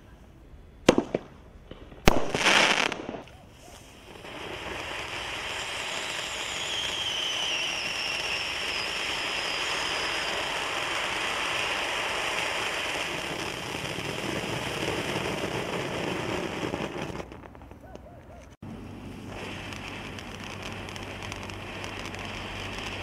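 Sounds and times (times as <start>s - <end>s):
fountain firework hissing: 2.3s - 17.4s, 18.6s - 23.0s
faint falling whistle: 5.8s - 10.5s.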